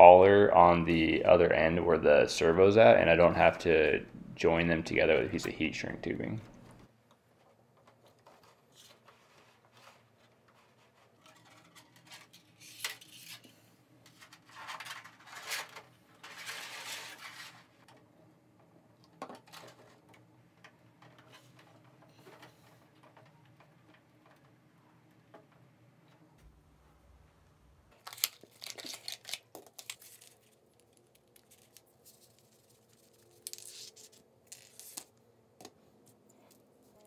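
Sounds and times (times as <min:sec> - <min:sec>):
plastic sliding and rubbing: 0:07.9 - 0:18.0, 0:19.4 - 0:24.6
plastic parts clicking and knocking: 0:17.8 - 0:26.2.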